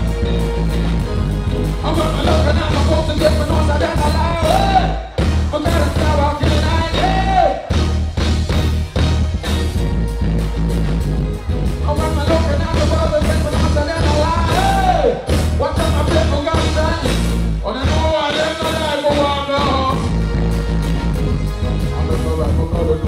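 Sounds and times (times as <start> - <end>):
live band with heavy bass: 0.0 - 23.0
man singing into a microphone: 1.8 - 7.7, 11.8 - 20.2, 21.8 - 23.0.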